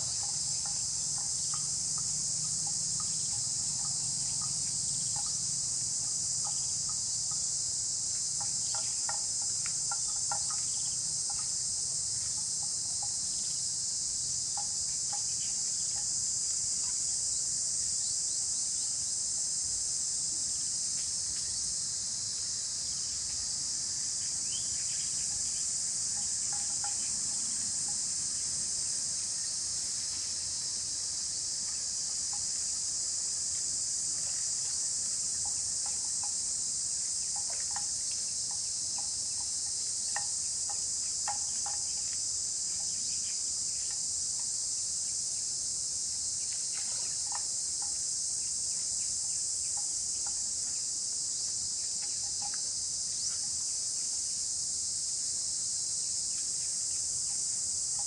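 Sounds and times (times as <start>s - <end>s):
insects droning in chorus: 0.0s - 58.0s.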